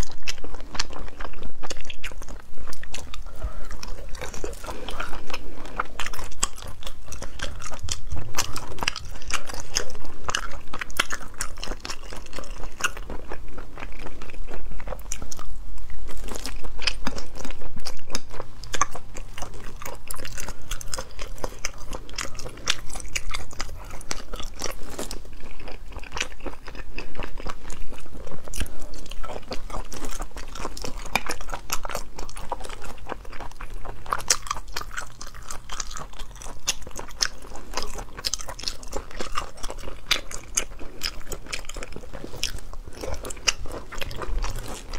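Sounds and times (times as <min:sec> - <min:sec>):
person chewing food: 0:00.0 - 0:44.9.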